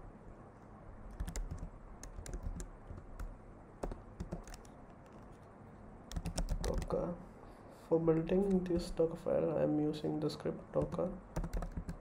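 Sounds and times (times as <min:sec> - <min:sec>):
keyboard typing: 0:01.1 - 0:05.4, 0:06.1 - 0:07.0, 0:10.8 - 0:12.0.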